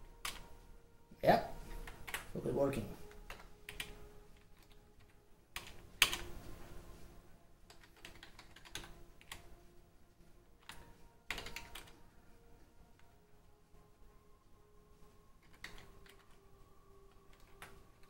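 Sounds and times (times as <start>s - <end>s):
computer keyboard keystrokes: 0.2s - 0.5s, 1.7s - 2.3s, 3.0s - 6.3s, 7.7s - 9.4s, 10.6s - 12.0s, 15.4s - 16.4s, 17.3s - 18.0s.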